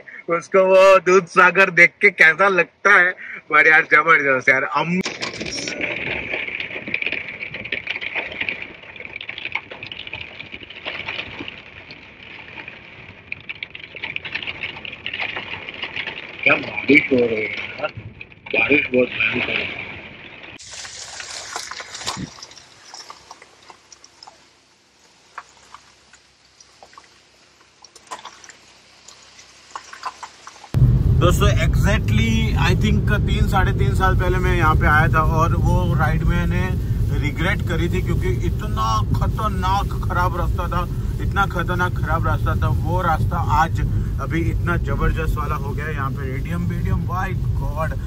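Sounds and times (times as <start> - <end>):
heavy rain pattering: 2.8 - 4.0, 4.8 - 48.0
faint steady hiss: 20.6 - 48.0.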